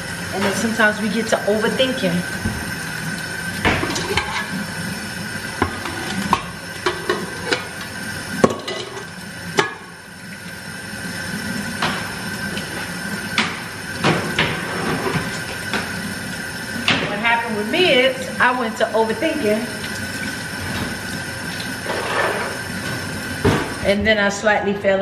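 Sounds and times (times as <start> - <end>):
dishes and utensils clinking: 3.8 - 4.6, 8.4 - 9.8, 21.8 - 22.6.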